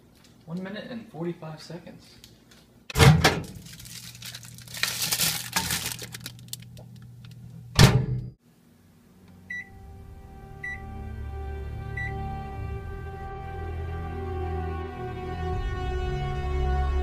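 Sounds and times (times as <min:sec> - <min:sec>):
plastic packaging crinkling: 0:03.4 - 0:07.5
low steady music: 0:09.4 - 0:17.0
microwave keypad beeps: 0:09.5 - 0:09.8, 0:10.6 - 0:10.8, 0:12.0 - 0:12.2.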